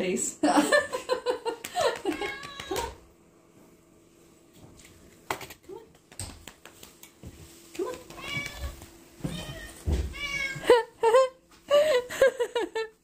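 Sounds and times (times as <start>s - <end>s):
cat meowing: 8.2s - 10.6s.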